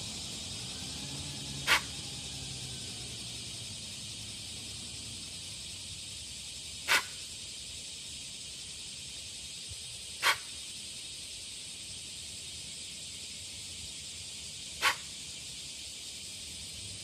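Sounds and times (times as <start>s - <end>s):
steady high hiss: 0.0s - 17.0s
antelope alarm snorts: 1.6s - 1.9s, 6.8s - 7.2s, 10.2s - 10.5s, 14.8s - 15.1s.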